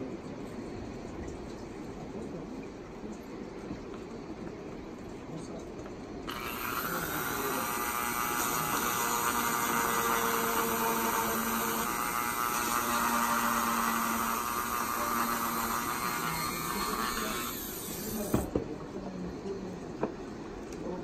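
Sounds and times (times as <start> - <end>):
rotary tool grinding bone: 6.3 - 18.5.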